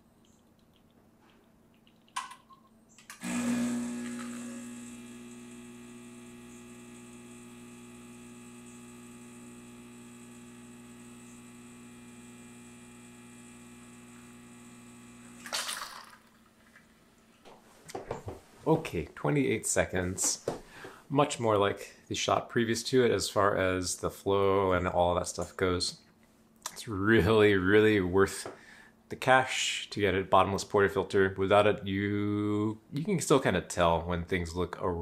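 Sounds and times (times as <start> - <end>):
espresso machine pump humming: 3.1 - 15.5.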